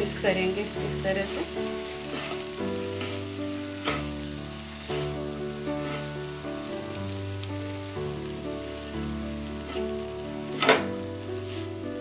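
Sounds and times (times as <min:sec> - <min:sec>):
noodles sizzling in a pan: 0:00.0 - 0:12.0
soft background music: 0:00.0 - 0:12.0.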